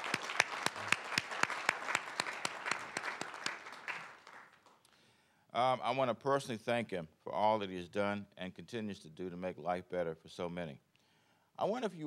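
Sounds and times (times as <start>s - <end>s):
audience applauding: 0.0s - 4.8s
sharp close hand claps: 0.0s - 4.8s.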